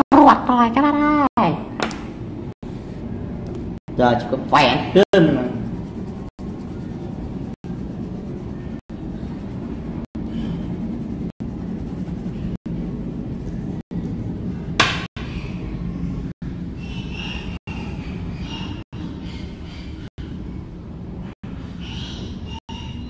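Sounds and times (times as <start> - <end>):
low background hum: 0.2 - 23.0
sharp knock: 14.8 - 15.1.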